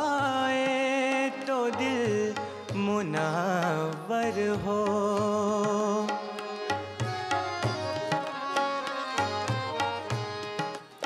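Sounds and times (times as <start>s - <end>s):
sitar melody: 0.0s - 11.0s.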